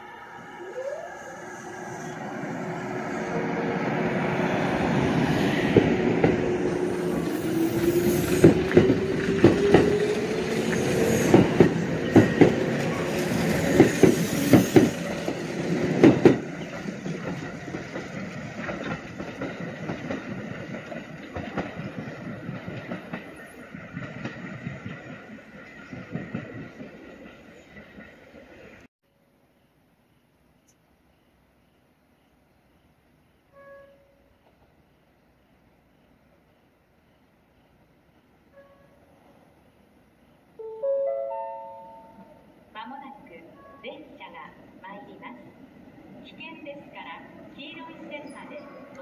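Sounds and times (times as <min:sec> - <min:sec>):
train wheels knocking on rail joints: 0:08.3 - 0:26.9.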